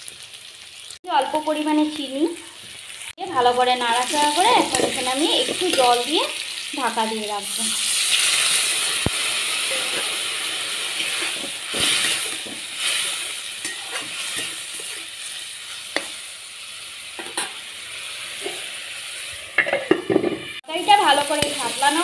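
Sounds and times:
vegetables sizzling in a pan: 0:00.0 - 0:22.0
metal spatula scraping pan: 0:03.2 - 0:06.0, 0:09.6 - 0:15.1.

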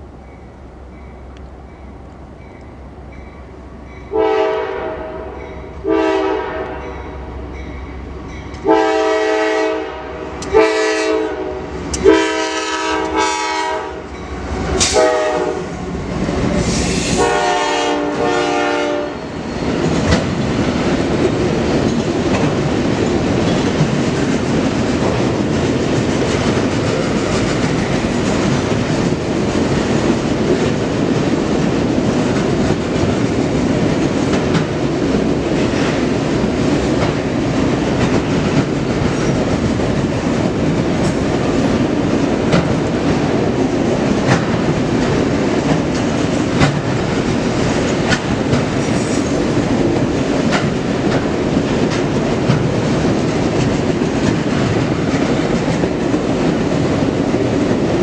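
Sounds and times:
freight cars rumbling on rails: 0:00.0 - 0:58.0
locomotive air horn blasts: 0:04.1 - 0:07.3, 0:08.6 - 0:14.1, 0:14.8 - 0:15.8, 0:16.7 - 0:19.2.

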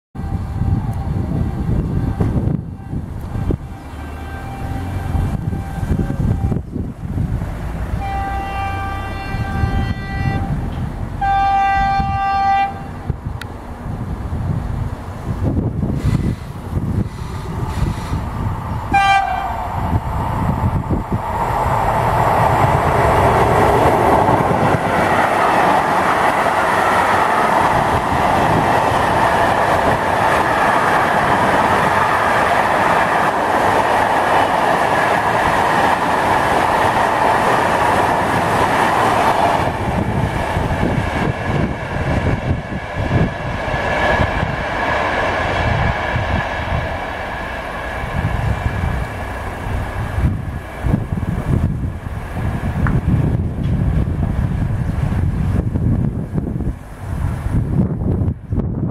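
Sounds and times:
train horn blast: 0:00.2 - 0:06.7, 0:08.0 - 0:10.6, 0:11.2 - 0:13.0, 0:18.9 - 0:19.8
wheels rushing on rail: 0:00.2 - 0:58.9.

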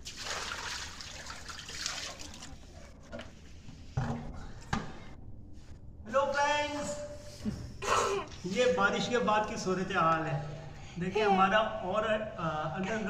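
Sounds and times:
water splashing onto tiled floor: 0:00.0 - 0:02.8.

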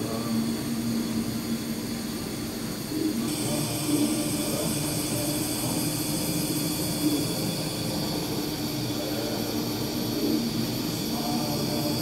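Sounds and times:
device humming: 0:02.9 - 0:12.0.

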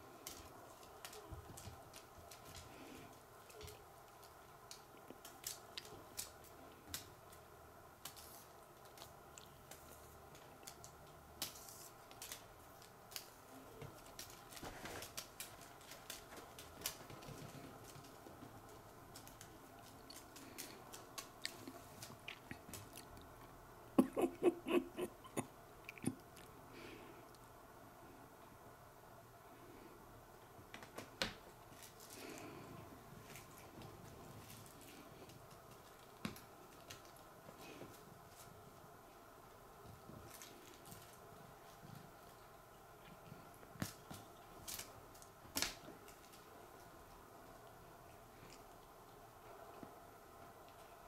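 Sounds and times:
faint steady hum: 0:00.0 - 0:51.0.

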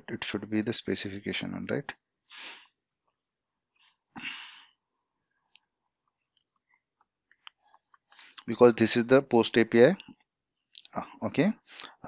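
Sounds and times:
breath into microphone: 0:02.3 - 0:02.8, 0:04.2 - 0:04.8, 0:08.1 - 0:08.4.

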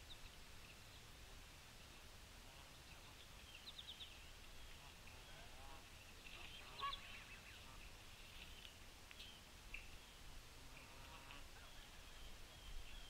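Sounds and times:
honk-like bird calls: 0:04.8 - 0:07.9.

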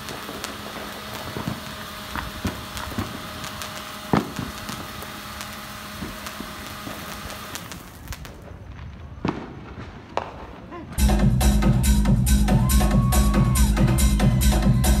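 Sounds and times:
spark machine fizzing hiss: 0:00.0 - 0:08.3.

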